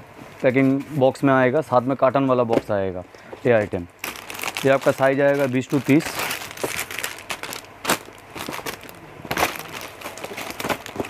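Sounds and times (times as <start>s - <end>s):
plastic packaging crinkling: 4.0s - 11.0s.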